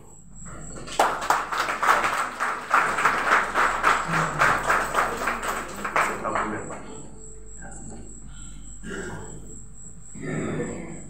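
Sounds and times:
audience applauding: 0.7s - 7.0s.

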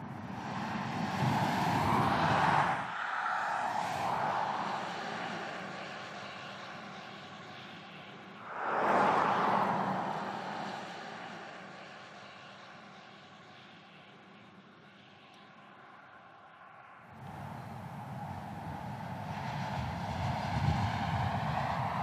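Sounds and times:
car passing at speed: 8.4s - 12.6s, 16.7s - 22.0s.

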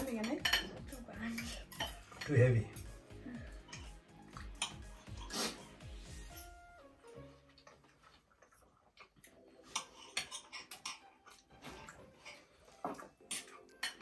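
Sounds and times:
cutlery clicking on plates: 0.0s - 2.4s, 3.6s - 4.9s, 9.6s - 14.0s.

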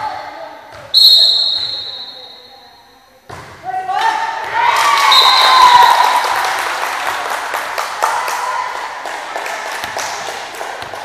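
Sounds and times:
scattered clapping: 4.8s - 11.0s.

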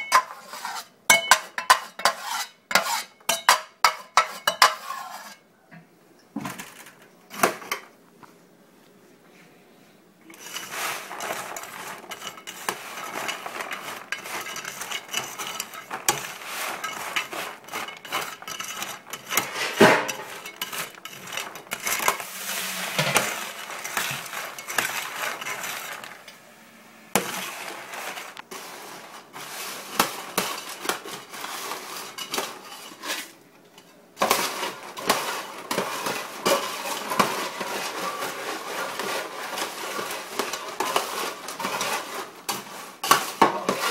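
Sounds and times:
metal scoop scraping steel tray: 0.0s - 5.4s, 10.3s - 43.9s
popcorn rattling: 10.3s - 26.6s, 34.2s - 43.9s.

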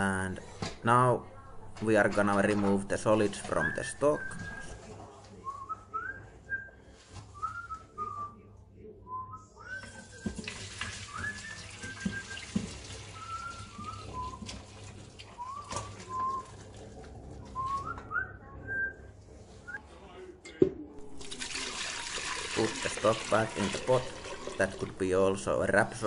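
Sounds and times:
liquid pouring and splashing: 9.8s - 17.4s, 21.0s - 25.5s
person whistling rising notes: 13.2s - 14.4s, 15.4s - 16.4s, 17.6s - 19.0s.

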